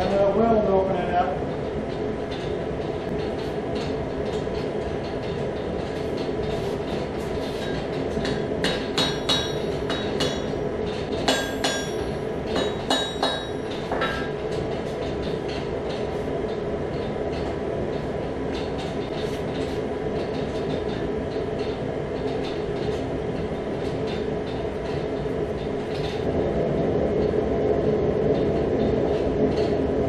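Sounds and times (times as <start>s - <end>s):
mallet striking hot metal: 8.6s - 10.6s, 11.2s - 14.4s.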